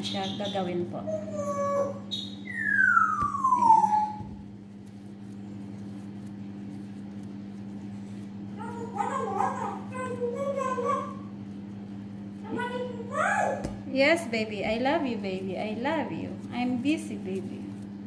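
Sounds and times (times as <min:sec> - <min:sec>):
steady low hum: 0:00.0 - 0:18.0
dog whining: 0:01.1 - 0:04.3.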